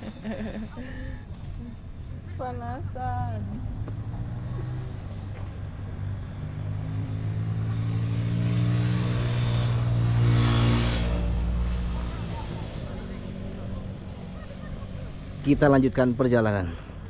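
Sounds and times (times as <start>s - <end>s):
vehicle engine passing by: 0.0s - 16.8s.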